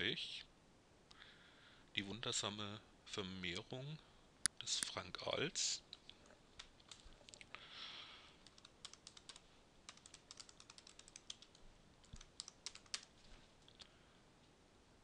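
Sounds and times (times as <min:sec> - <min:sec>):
soft hiss: 0:00.0 - 0:15.0
keyboard typing: 0:08.4 - 0:13.1.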